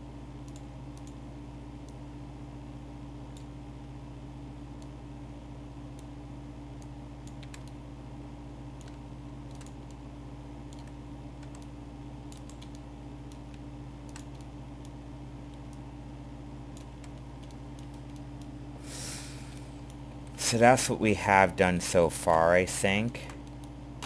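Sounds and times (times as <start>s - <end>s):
steady low hum: 0.0s - 24.0s
keyboard and mouse clicks: 6.8s - 7.8s, 8.8s - 10.0s, 10.7s - 11.7s, 12.3s - 15.8s, 16.7s - 18.5s.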